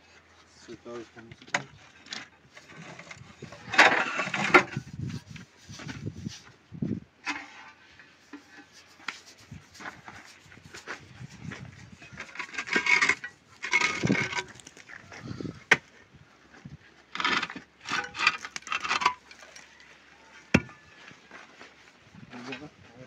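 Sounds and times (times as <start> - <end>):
ceramic tiles scraping on wall: 2.5 - 6.4, 7.3 - 15.8, 17.2 - 19.6.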